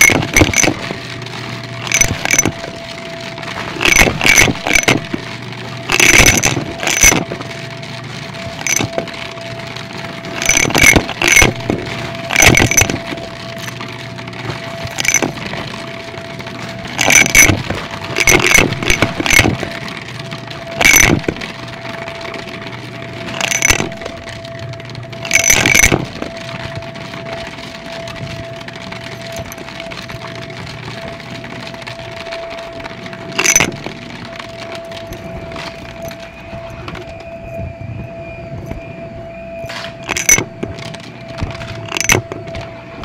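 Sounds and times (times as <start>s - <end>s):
coins clinking and rattling: 0.0s - 20.1s, 20.7s - 24.4s, 25.1s - 28.4s, 32.8s - 36.2s, 39.6s - 41.0s, 41.6s - 42.4s.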